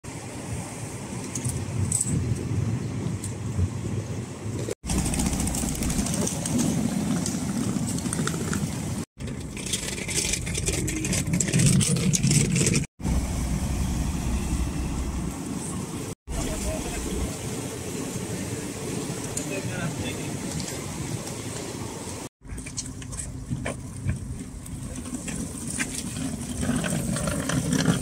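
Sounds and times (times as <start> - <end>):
bus engines idling: 13.0 - 22.2.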